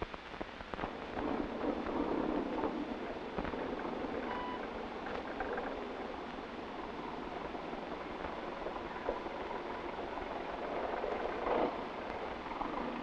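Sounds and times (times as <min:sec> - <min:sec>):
steady rushing noise: 0:00.0 - 0:13.0
brief faint tone: 0:04.3 - 0:04.7.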